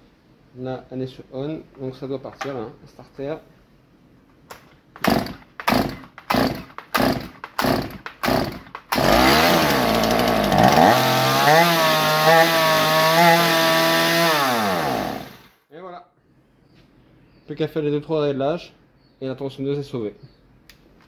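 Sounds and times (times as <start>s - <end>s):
chainsaw engine running: 5.0s - 15.5s.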